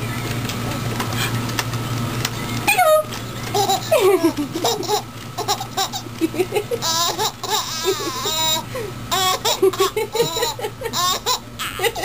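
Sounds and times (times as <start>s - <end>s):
baby laughing: 3.4s - 12.0s.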